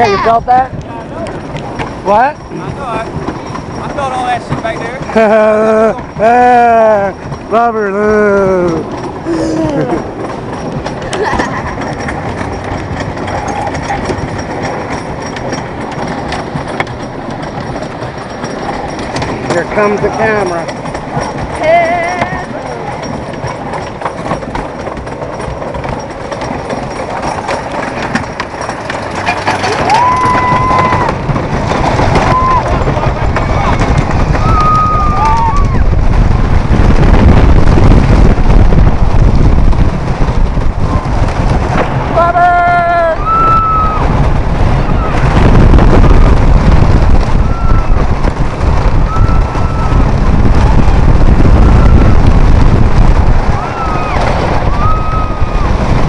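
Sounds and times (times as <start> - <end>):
roller coaster clattering on track: 0.0 - 56.0
roller coaster rumble: 0.0 - 56.0
wind rushing over microphone: 0.0 - 56.0
riders screaming: 29.6 - 31.3, 32.1 - 36.0, 42.3 - 45.5, 46.9 - 52.5, 53.4 - 56.0.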